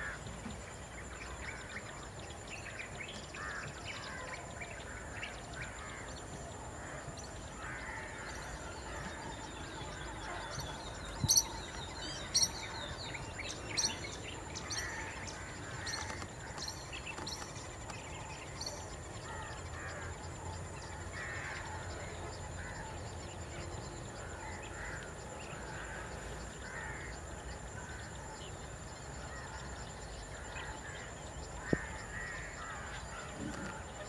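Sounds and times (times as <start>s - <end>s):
birds chirping: 8.4s - 21.8s.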